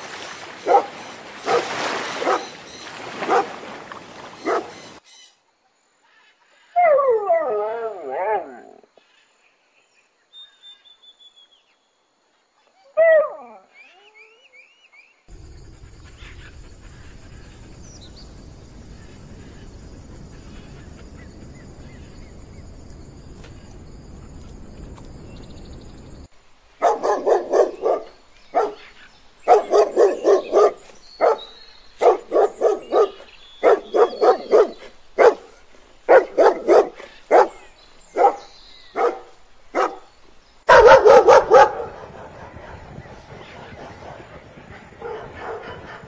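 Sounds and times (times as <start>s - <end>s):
dog barking: 0.6s - 2.5s, 3.2s - 3.6s, 4.4s - 4.8s, 26.8s - 28.8s, 29.5s - 35.5s, 36.1s - 37.6s, 38.2s - 40.1s, 40.7s - 43.1s, 44.1s - 46.0s.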